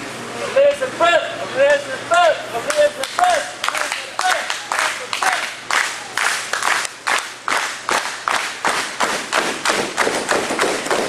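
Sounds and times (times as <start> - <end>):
crowd clapping in unison: 2.7 - 11.0.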